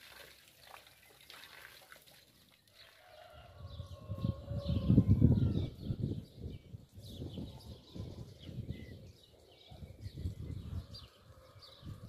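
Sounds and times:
low rumble in gusts: 3.6 - 9.0.

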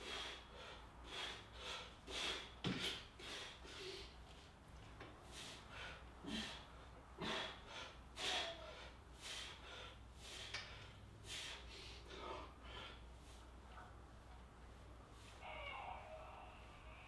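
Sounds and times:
man breathing hard: 0.0 - 4.6, 5.2 - 13.6.

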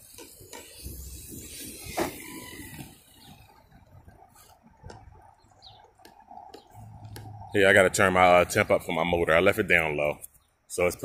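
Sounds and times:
rc car driving over grass: 0.0 - 5.1.

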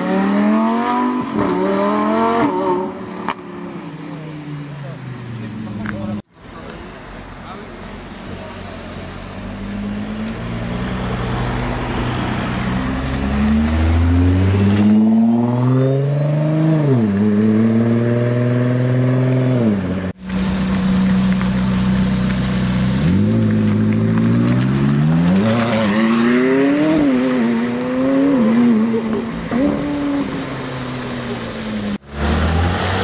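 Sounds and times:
car engine revving: 9.4 - 33.0
car accelerating hard: 9.6 - 20.1, 21.8 - 33.0.

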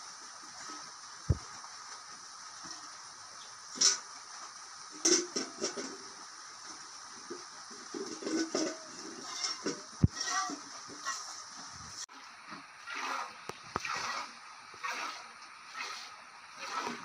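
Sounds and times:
milk spurting into metal pail: 12.8 - 17.0.

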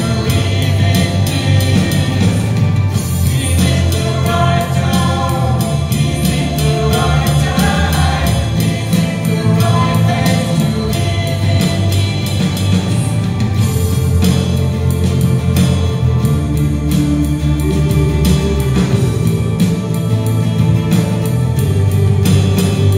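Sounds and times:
person singing: 0.0 - 2.6, 3.2 - 13.3
rock band playing live: 0.0 - 22.9.

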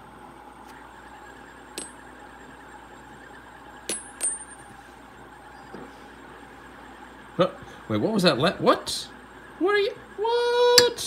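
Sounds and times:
spinner bearing whir: 0.0 - 11.0
metal spinners clinking: 3.8 - 4.7.

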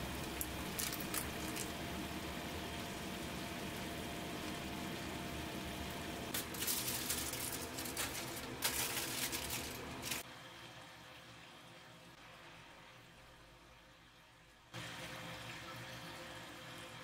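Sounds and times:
broth bubbling in a pan: 0.0 - 6.6
aluminium foil crinkling: 0.2 - 1.8, 6.3 - 10.2.

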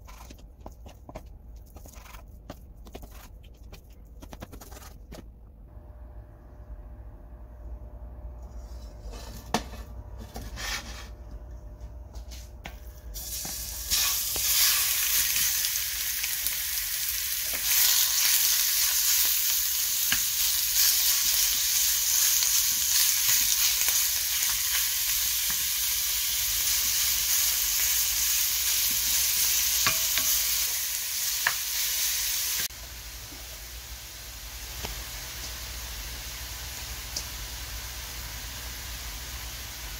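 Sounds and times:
meat sizzling in hot oil: 13.2 - 39.9.

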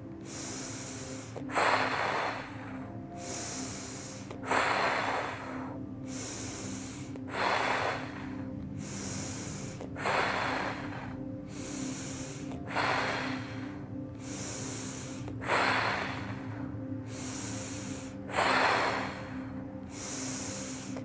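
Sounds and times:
soft background music: 0.0 - 21.0
woman breathing forcefully: 0.0 - 21.0.

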